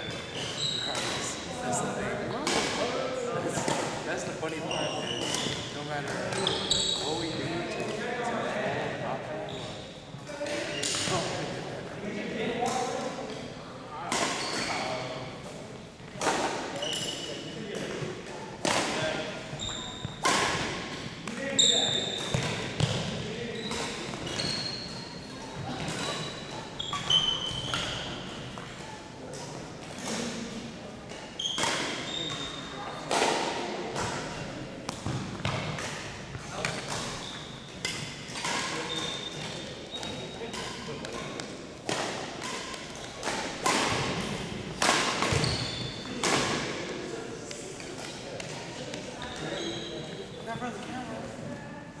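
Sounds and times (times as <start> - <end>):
sneakers squeaking on gym floor: 0.0 - 2.5, 4.5 - 7.9, 9.4 - 11.3, 14.2 - 15.4, 16.2 - 18.1, 18.9 - 29.0, 31.1 - 33.0, 34.0 - 41.5, 45.0 - 46.2, 48.0 - 50.8
rackets striking shuttlecock: 19.9 - 24.6, 33.1 - 46.7.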